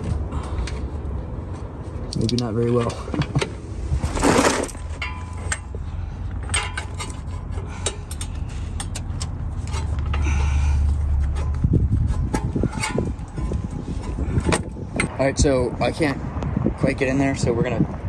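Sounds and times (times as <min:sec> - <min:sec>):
steady low rumble: 0:00.0 - 0:18.0
pry bar clinking on metal: 0:06.4 - 0:10.3.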